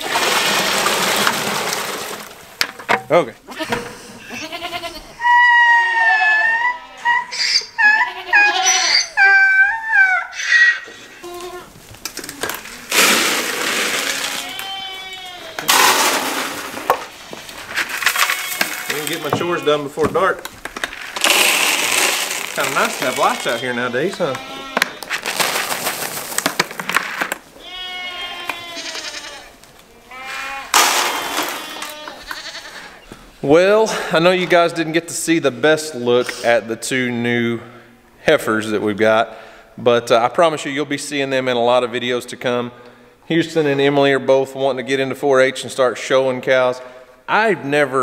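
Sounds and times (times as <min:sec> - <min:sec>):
dry feed rattling from bucket: 0:00.0 - 0:03.0, 0:12.1 - 0:14.8, 0:15.6 - 0:24.4, 0:25.0 - 0:27.4, 0:30.7 - 0:32.0
goats bleating: 0:03.5 - 0:11.8, 0:13.9 - 0:15.8, 0:18.1 - 0:19.7, 0:22.5 - 0:25.2, 0:27.6 - 0:33.0
faint rustling: 0:10.9 - 0:28.0.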